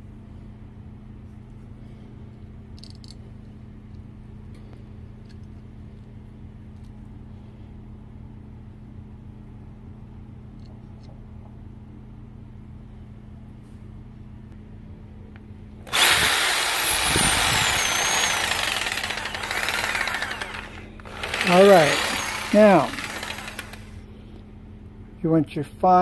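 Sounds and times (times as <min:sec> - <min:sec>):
electric power tool whining: 0:15.9 - 0:24.0.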